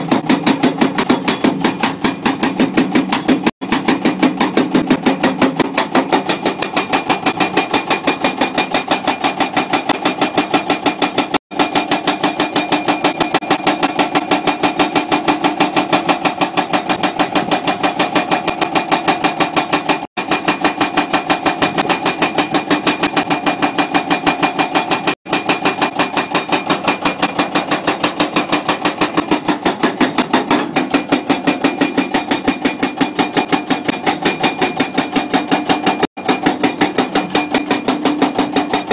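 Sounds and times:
hydraulic rock breaker hammering: 0:00.0 - 0:38.9.

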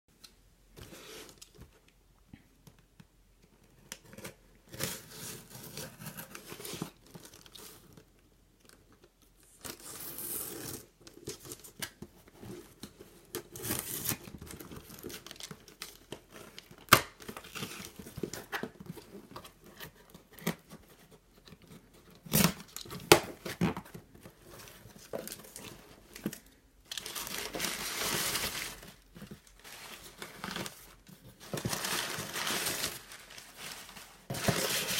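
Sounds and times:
packing paper rustling: 0:21.4 - 0:34.9
cardboard box scraping and tearing: 0:29.6 - 0:34.9.

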